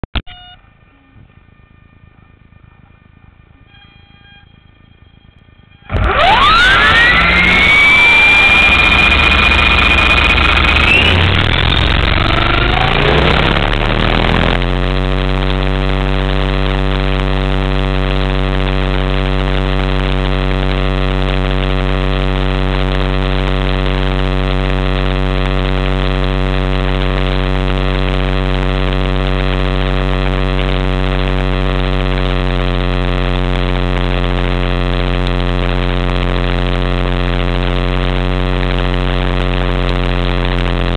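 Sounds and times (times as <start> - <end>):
motor and rotor drone: 0.4 - 40.9
electric helicopter motor whine: 0.8 - 14.6.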